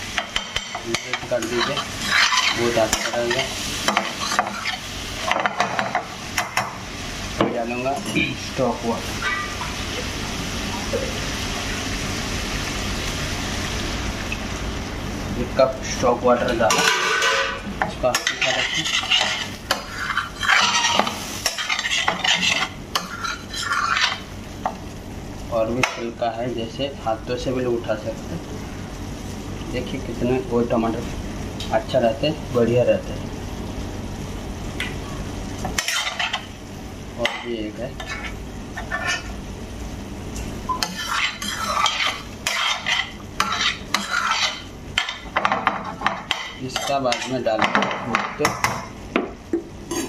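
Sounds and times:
gravy sizzling: 0.0 - 50.0
metal spoon scraping a pan: 0.2 - 6.5, 16.7 - 24.2, 35.7 - 36.5, 37.2 - 39.3, 40.8 - 47.5.

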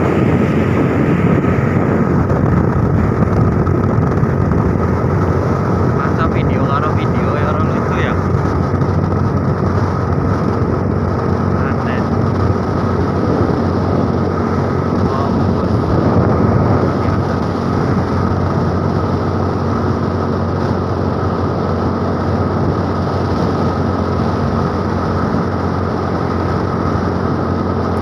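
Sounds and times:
road noise: 0.0 - 28.0
scooter engine running: 0.0 - 28.0
wind rush: 0.0 - 28.0.

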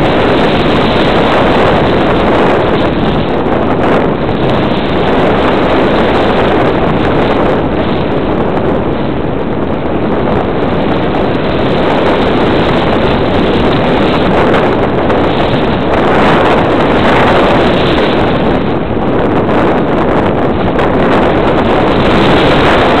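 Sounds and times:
wind rush: 0.0 - 23.0.

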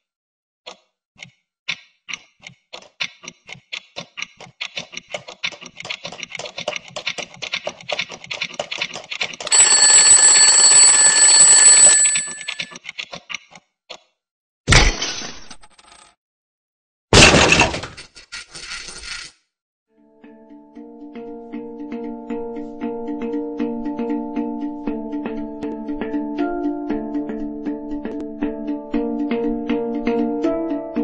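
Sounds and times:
alarm bell ringing: 9.5 - 12.8
alarm clock ticking: 9.5 - 12.8
clock crashing apart: 17.2 - 18.0.

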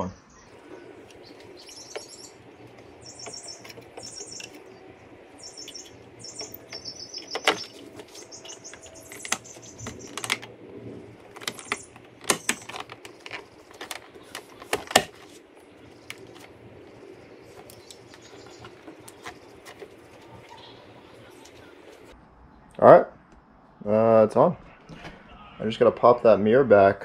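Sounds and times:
high-pitched chirping: 1.2 - 10.3
plastic tapping and rubbing: 11.3 - 15.4, 17.6 - 20.4.

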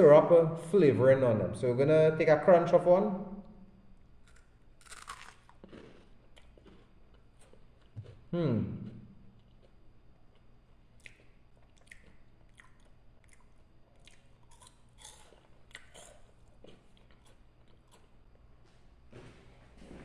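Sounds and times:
crunching corn snack: 4.2 - 8.2, 9.4 - 18.2.

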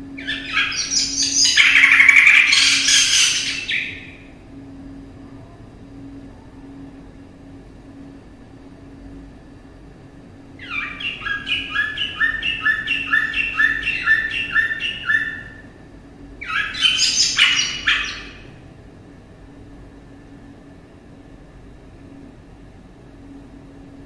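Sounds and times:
faint steady hum: 0.0 - 24.0
songbird singing: 0.1 - 4.2, 10.6 - 15.6, 16.4 - 18.5.

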